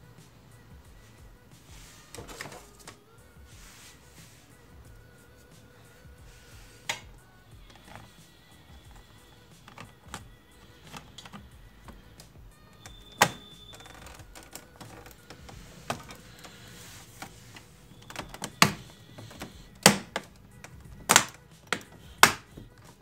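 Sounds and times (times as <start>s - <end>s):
plastic clips snapping into place: 6.8s - 7.1s, 18.0s - 23.0s.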